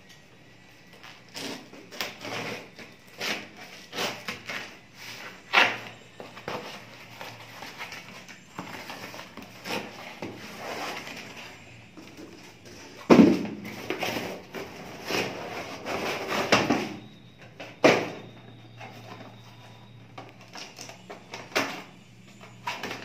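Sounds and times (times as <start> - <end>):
cardboard tearing and rustling: 1.0 - 17.0
box thumping in cardboard carton: 13.1 - 14.2.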